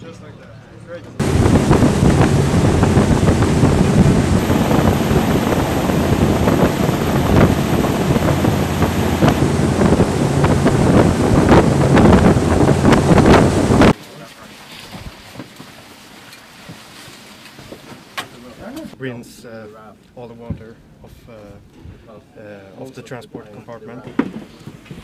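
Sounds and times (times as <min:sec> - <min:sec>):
low engine drone: 0:01.2 - 0:13.9
wind buffeting on microphone: 0:01.2 - 0:14.0
rush of water and spray: 0:01.2 - 0:18.5.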